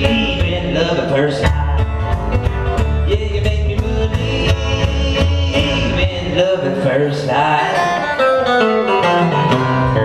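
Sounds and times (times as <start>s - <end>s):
man singing: 0.0s - 10.0s
strummed acoustic guitar: 0.0s - 10.0s
upright bass: 0.0s - 10.0s.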